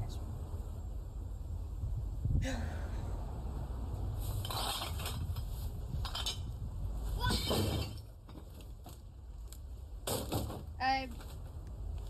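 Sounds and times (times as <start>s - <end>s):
steady low rumble: 0.0s - 7.2s.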